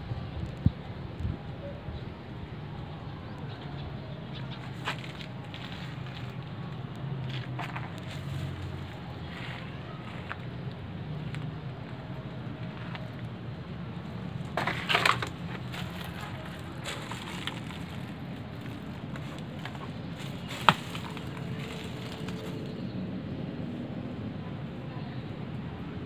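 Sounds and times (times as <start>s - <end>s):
dry leaves crunching underfoot: 4.6s - 10.4s, 14.4s - 22.8s.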